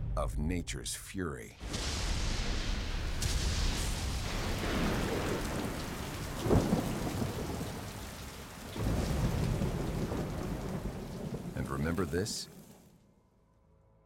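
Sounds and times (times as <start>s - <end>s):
deep thunder rumbling: 1.6s - 12.8s
thunder crack: 1.6s - 12.8s
heavy rain pouring: 1.6s - 13.0s.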